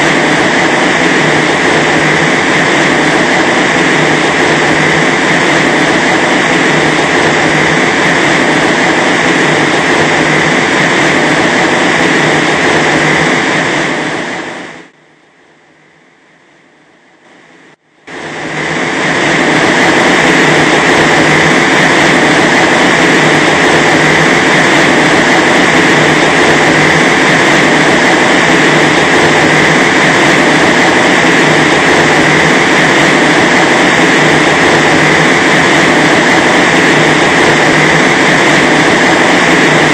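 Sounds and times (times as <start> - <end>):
loud rushing wind: 0.0 - 14.9, 18.1 - 39.9.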